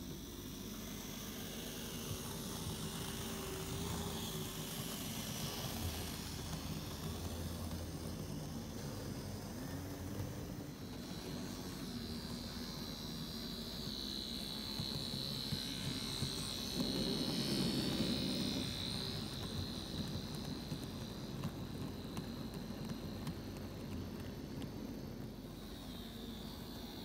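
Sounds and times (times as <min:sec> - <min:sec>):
model train motor whining: 0:00.0 - 0:27.0
wheels rumbling on track: 0:14.6 - 0:25.4.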